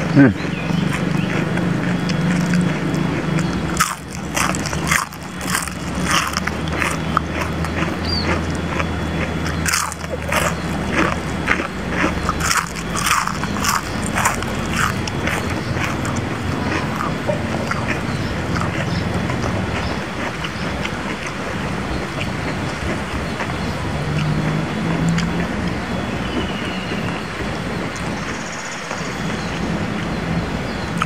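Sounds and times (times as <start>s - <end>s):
chewing crispy fried leaves: 0.1s - 31.0s.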